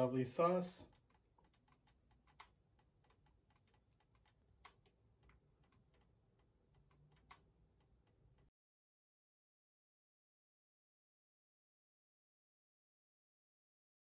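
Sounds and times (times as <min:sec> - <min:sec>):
soft clicks: 0:00.9 - 0:08.5.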